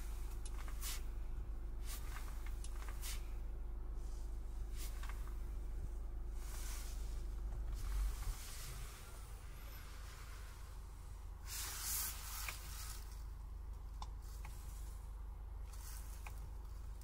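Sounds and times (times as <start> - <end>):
diesel engine idling: 0.0 - 17.0
brief hiss: 11.4 - 13.1.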